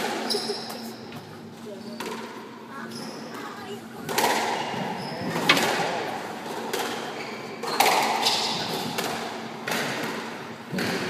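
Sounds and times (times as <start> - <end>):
ball hitting court walls: 4.1 - 11.0
racket hitting ball: 7.7 - 11.0.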